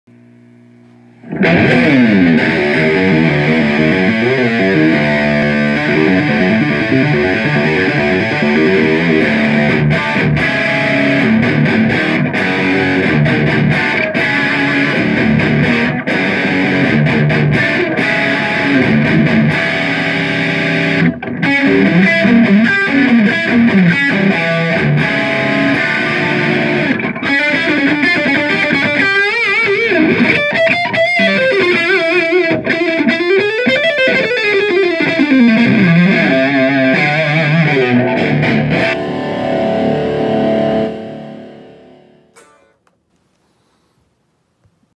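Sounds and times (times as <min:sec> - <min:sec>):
distorted electric guitar: 0:00.1 - 0:43.0.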